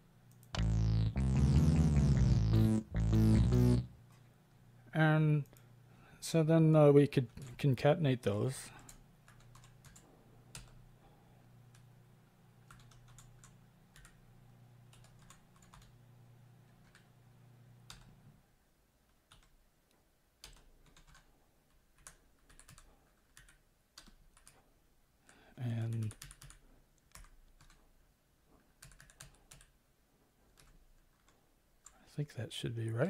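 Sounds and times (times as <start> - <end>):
low steady hum: 0.0 - 19.2
faint keyboard typing: 7.2 - 7.7, 8.7 - 10.8, 12.6 - 14.2, 14.8 - 16.0, 16.6 - 17.1, 17.8 - 18.2, 19.1 - 19.6, 20.4 - 28.0, 28.6 - 29.8, 30.4 - 32.0.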